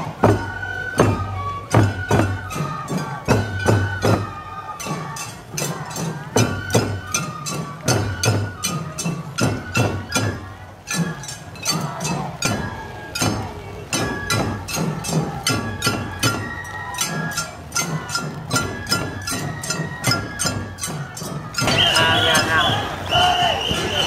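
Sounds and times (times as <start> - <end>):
low drumbeat: 17.9 - 24.0.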